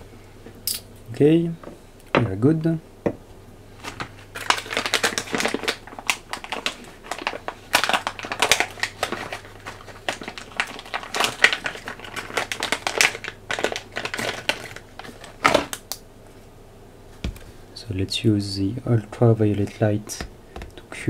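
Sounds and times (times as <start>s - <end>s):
crinkling and clicking handling noise: 3.8s - 16.5s, 18.9s - 21.0s.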